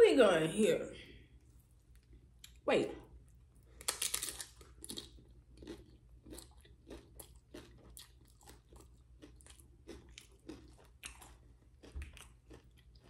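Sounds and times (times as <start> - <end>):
person chewing crunchy food: 3.6 - 13.0.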